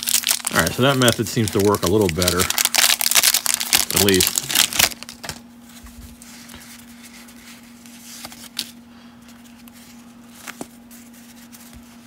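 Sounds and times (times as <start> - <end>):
steady low hum: 0.0 - 12.0
cards sliding and rustling: 5.2 - 12.0.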